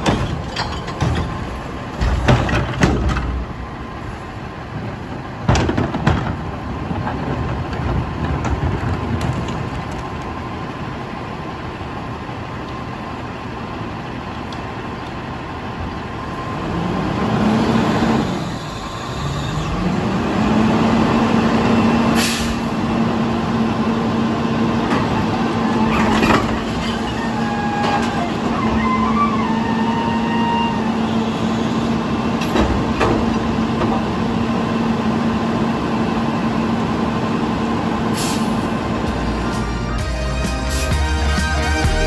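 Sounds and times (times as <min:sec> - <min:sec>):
garbage truck diesel engine revving: 0:16.4 - 0:42.0.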